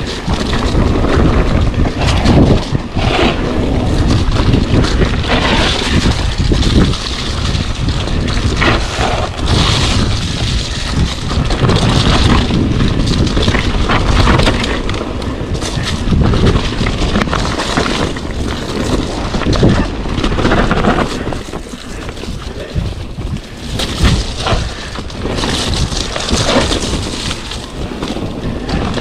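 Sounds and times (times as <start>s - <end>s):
bike clattering over bumps: 0.0s - 29.0s
bike tyres rolling on dirt: 0.0s - 29.0s
wind buffeting microphone: 0.0s - 29.0s.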